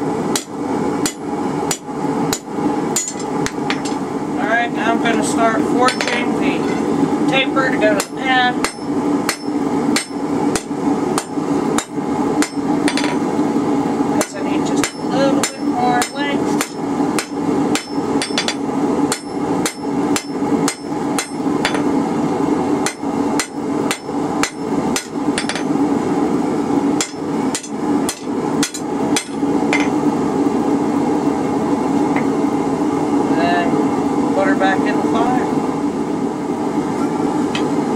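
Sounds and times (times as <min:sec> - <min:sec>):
steady hum: 0:00.0 - 0:37.9
hammer striking metal on anvil: 0:00.3 - 0:04.0, 0:05.9 - 0:06.9, 0:08.0 - 0:13.2, 0:14.2 - 0:21.9, 0:22.8 - 0:25.7, 0:27.0 - 0:30.0.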